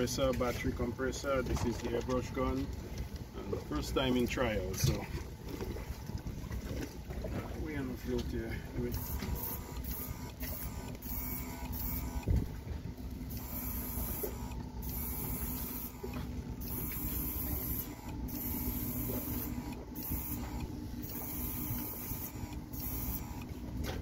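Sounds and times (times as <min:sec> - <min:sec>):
airbrush compressor humming: 0:08.9 - 0:23.9.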